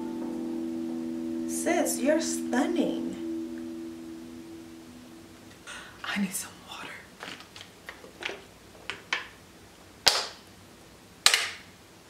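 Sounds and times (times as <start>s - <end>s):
plastic bottle crackling: 7.2s - 9.3s.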